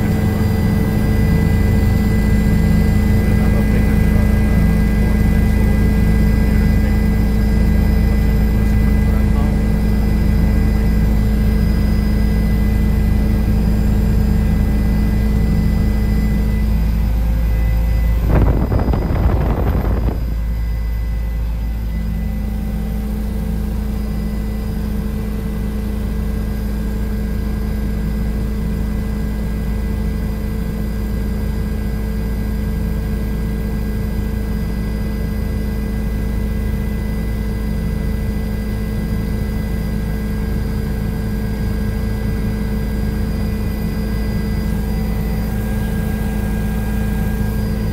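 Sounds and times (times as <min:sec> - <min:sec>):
helicopter engine and rotor drone: 0:00.0 - 0:47.9
rush of noise: 0:17.2 - 0:20.8.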